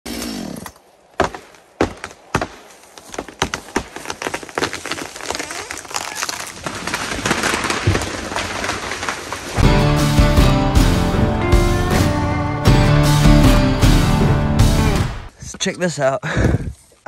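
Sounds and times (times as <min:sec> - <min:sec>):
wood cracking and snapping: 0:00.7 - 0:09.6
breaking wood and branches rushing: 0:01.2 - 0:10.8
low thud of falling tree: 0:06.5 - 0:09.7.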